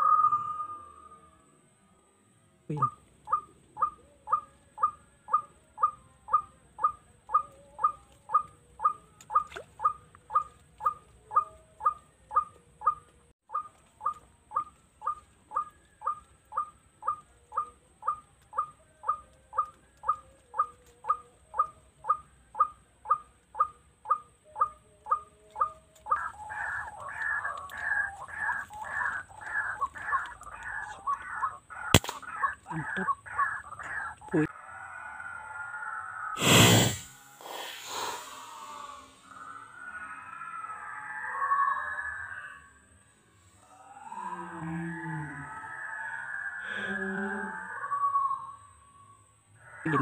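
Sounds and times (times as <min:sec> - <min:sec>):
waterhen kwak call: 0:02.7 - 0:22.7, 0:24.6 - 0:34.5.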